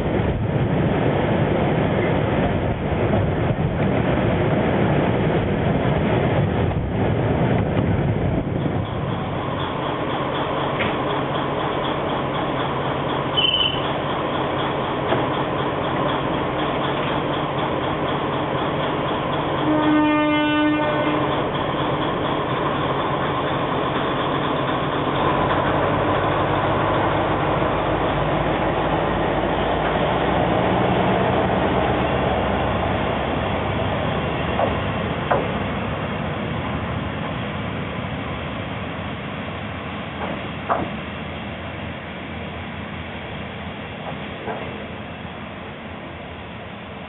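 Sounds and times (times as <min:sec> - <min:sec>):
diesel railcar engine: 0:00.0 - 0:47.0
train horn: 0:19.6 - 0:21.4.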